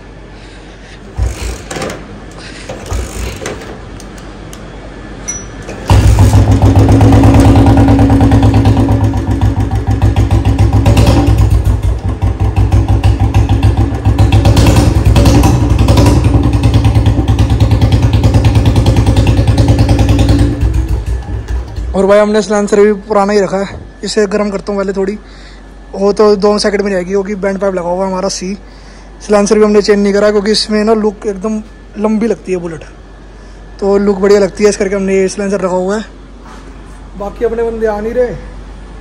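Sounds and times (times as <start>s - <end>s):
motorcycle engine starting and idling: 1.1s - 4.6s, 5.3s - 22.8s.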